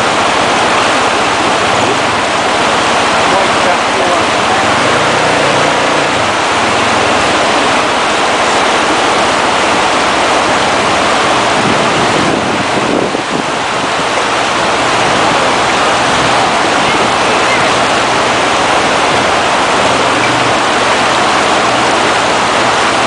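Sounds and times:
river rushing over rocks: 0:00.0 - 0:23.0.

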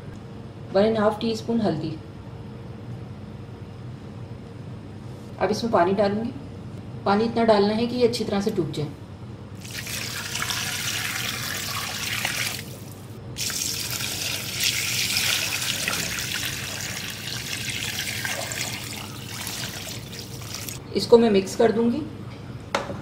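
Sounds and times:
water pouring into metal pot: 0:09.6 - 0:20.8.

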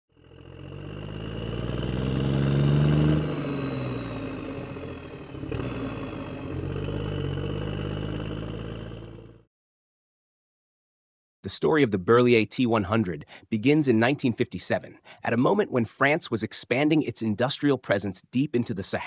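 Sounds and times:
engine revving: 0:00.1 - 0:09.5.

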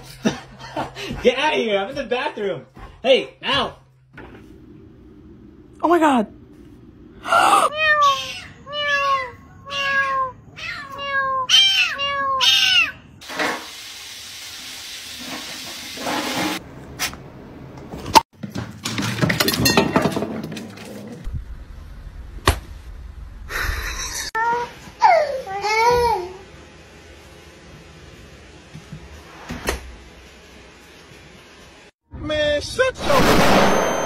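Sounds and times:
cat meowing: 0:07.7 - 0:13.1
knocks and clattering: 0:18.4 - 0:21.2.

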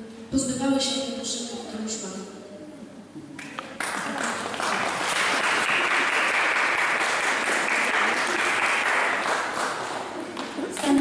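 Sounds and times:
crowd applauding: 0:03.8 - 0:10.2.

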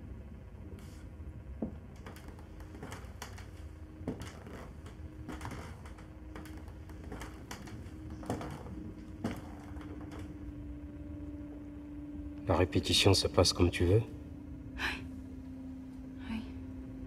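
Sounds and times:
faint steady hum: 0:00.0 - 0:17.0
footsteps in a room: 0:00.8 - 0:12.5.

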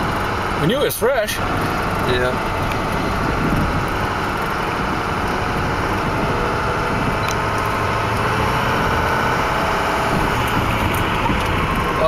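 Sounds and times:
truck engine running: 0:00.0 - 0:12.0
tyres on gravel road: 0:00.0 - 0:12.0.

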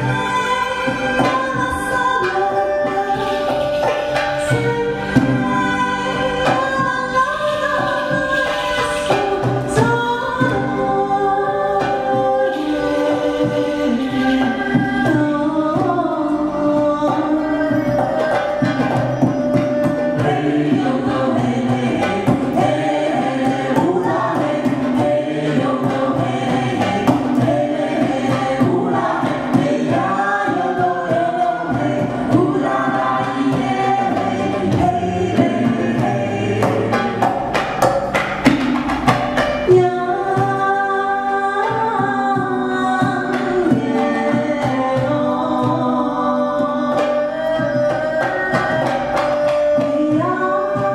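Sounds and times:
woman singing: 0:00.0 - 0:37.3, 0:39.6 - 0:50.9
frame drum: 0:11.8 - 0:50.9.

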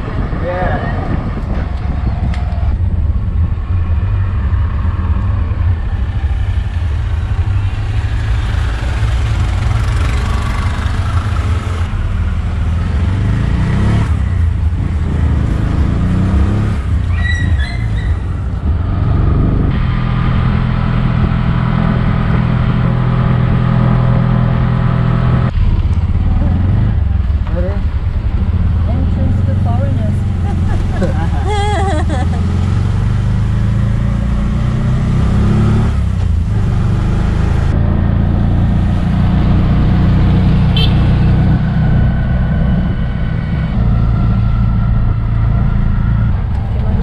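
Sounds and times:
wind and road noise: 0:00.0 - 0:47.0
auto-rickshaw engine running: 0:01.0 - 0:35.0, 0:35.7 - 0:47.0.

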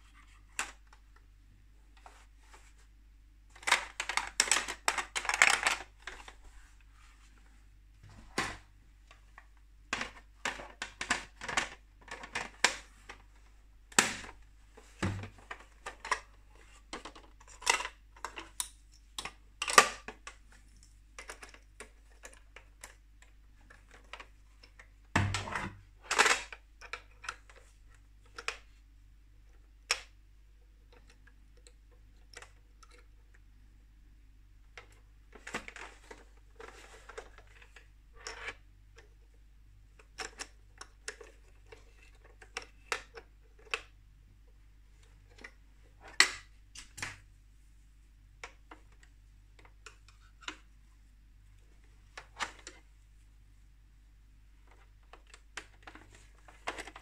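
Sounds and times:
plastic toy parts clicking and rattling: 0:03.5 - 0:06.4, 0:09.9 - 0:13.2, 0:15.4 - 0:20.4, 0:21.1 - 0:24.9, 0:26.0 - 0:27.7, 0:30.8 - 0:33.2, 0:34.8 - 0:39.2, 0:40.0 - 0:43.9, 0:54.7 - 0:57.0.

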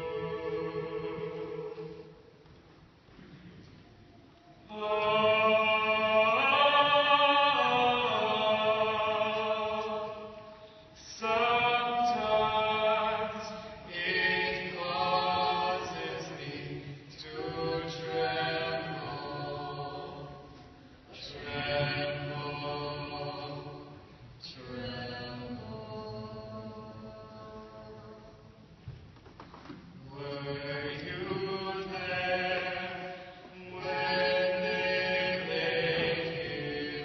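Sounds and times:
person singing long held notes: 0:00.0 - 0:02.2.

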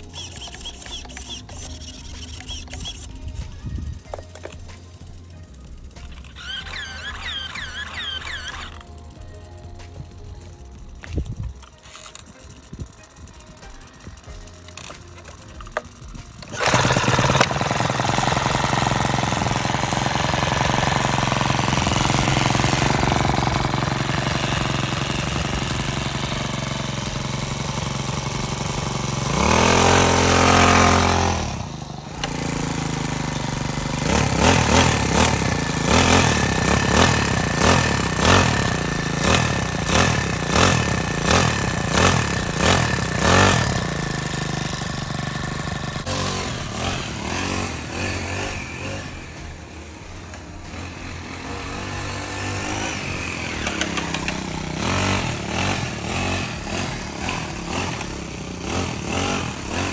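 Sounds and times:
rc car engine revving: 0:00.0 - 0:59.9.

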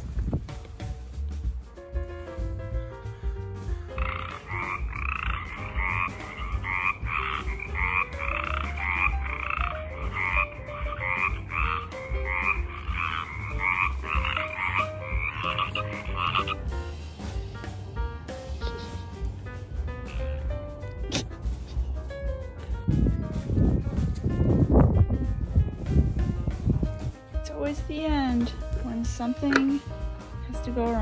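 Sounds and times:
music with a steady beat: 0:00.0 - 0:31.0
frogs croaking: 0:04.0 - 0:16.7, 0:20.0 - 0:20.5.

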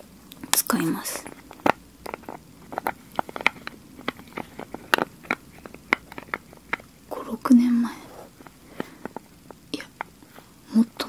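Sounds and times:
plastic cap clicking and tapping: 0:01.2 - 0:07.0, 0:08.1 - 0:10.2.

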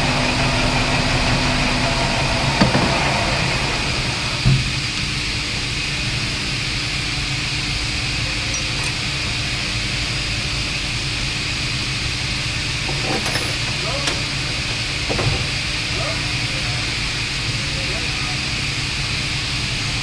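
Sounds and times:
lathe motor hum: 0:00.0 - 0:04.5, 0:08.8 - 0:20.0.

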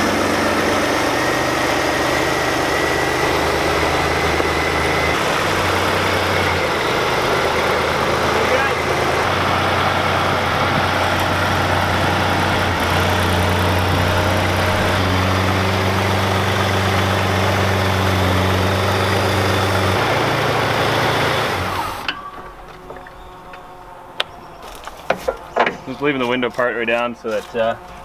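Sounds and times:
truck engine running: 0:00.0 - 0:26.8.

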